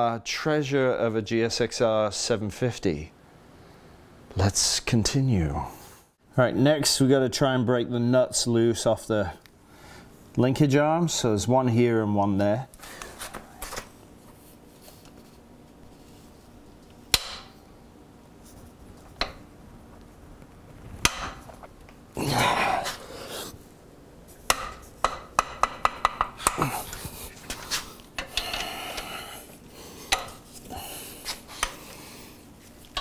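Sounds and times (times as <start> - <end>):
hand tools knocking on bolts: 24.5 - 26.7.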